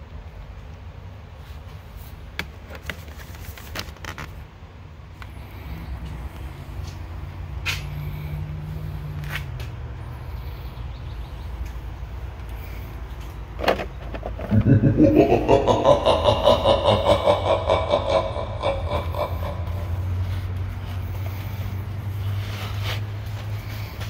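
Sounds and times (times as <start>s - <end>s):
engine hum: 0.0s - 24.0s
low rumble: 14.4s - 21.0s.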